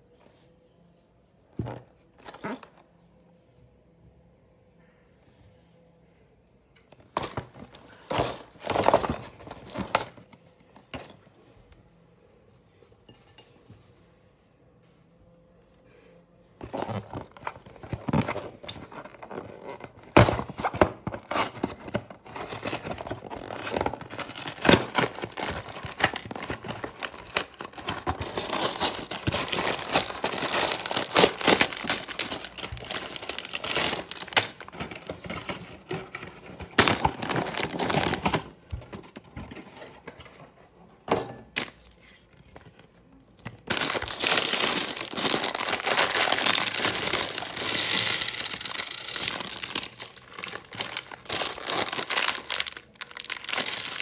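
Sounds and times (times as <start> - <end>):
plastic bags crinkling and tearing: 16.7 - 38.5, 43.5 - 54.0.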